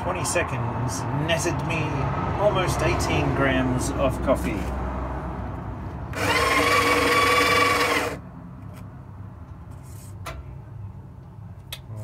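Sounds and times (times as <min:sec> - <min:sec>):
coffee grinder grinding beans: 0:06.2 - 0:08.2.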